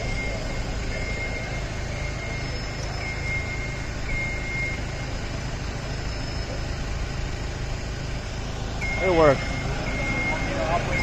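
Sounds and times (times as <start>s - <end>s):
crane engine running: 0.0s - 11.0s
short warning beeps: 0.0s - 11.0s.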